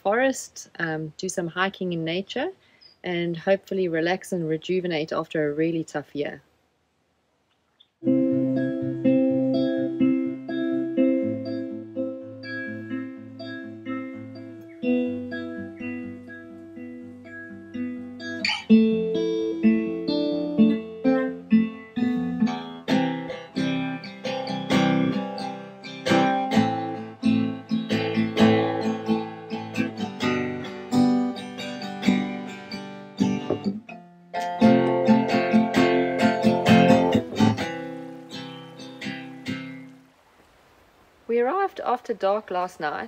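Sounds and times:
acoustic guitar music: 8.0s - 40.1s.

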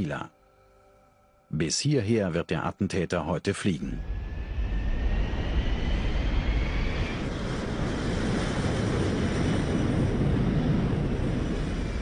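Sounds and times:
jet engine whine: 3.7s - 12.0s
jet engines roaring: 4.0s - 12.0s.

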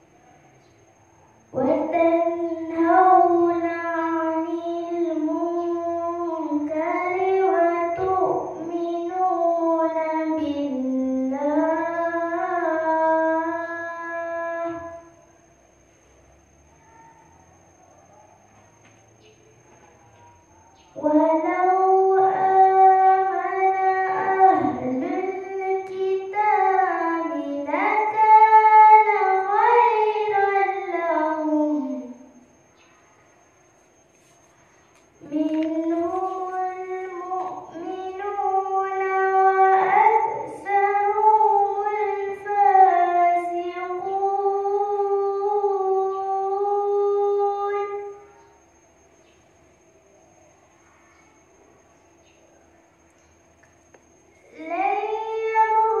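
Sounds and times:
girl reciting melodically: 0.0s - 15.8s, 20.7s - 49.8s, 50.4s - 56.0s.

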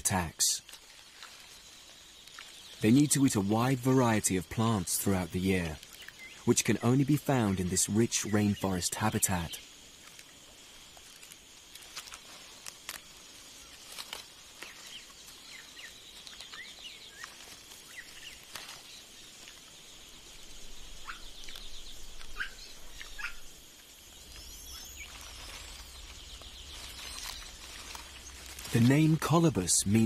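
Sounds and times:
bird trills: 20.9s - 23.5s, 24.1s - 28.8s.

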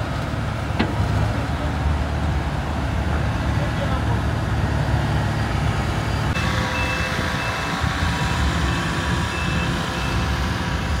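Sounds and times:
road roller diesel engine rumbling: 0.0s - 11.0s
reversing alarm beeps: 6.4s - 10.4s.

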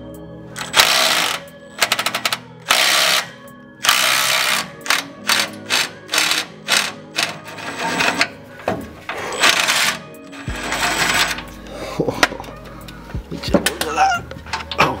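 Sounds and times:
ratchet wrench clicking: 0.6s - 7.4s.

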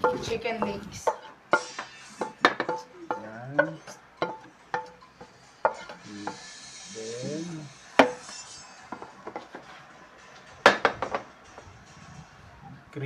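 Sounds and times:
spatula knocking on pan: 0.0s - 6.5s
wooden spatula scraping frying pan: 5.2s - 6.4s.

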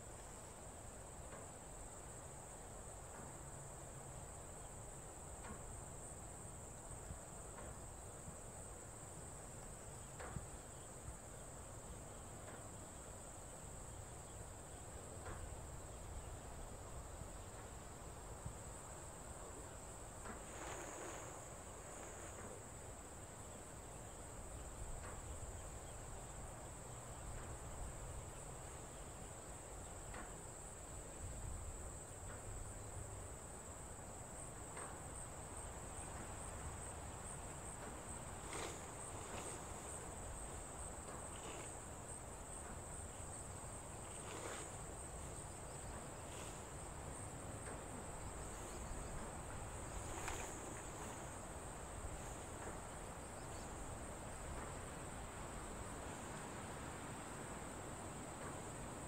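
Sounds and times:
tent fabric rustling: 20.3s - 22.4s, 37.7s - 42.0s, 48.4s - 52.9s.

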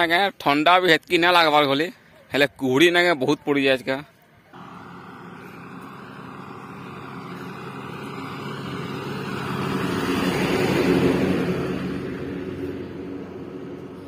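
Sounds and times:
vehicle passing on road: 4.6s - 14.0s.

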